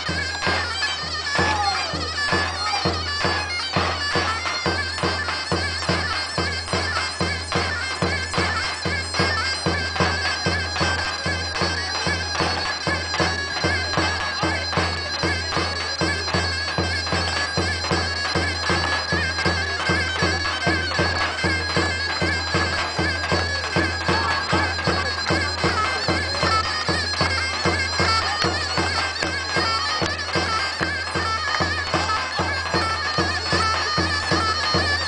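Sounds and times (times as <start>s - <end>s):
bagpipe playing dance tune: 0.0s - 35.0s.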